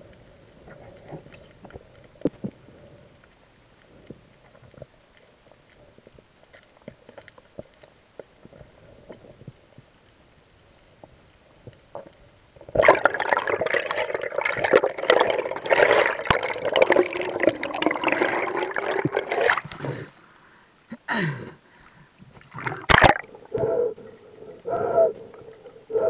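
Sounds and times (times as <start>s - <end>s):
faint underwater clicks: 0.0s - 20.6s, 21.7s - 26.0s
rush of bubbling water: 12.6s - 20.2s, 22.3s - 26.0s.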